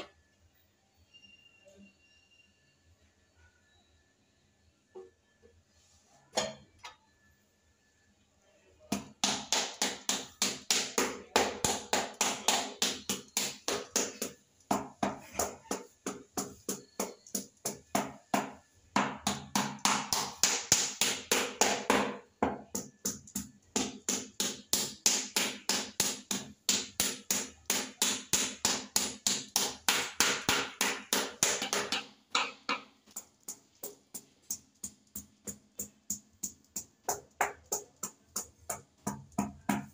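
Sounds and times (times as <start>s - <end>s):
rubber mallet tapping tile: 19.2s - 39.9s.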